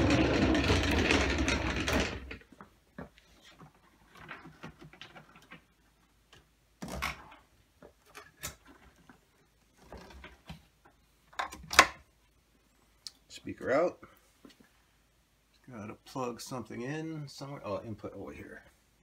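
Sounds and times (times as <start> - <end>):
objects handled on a workbench: 0.0 - 12.2.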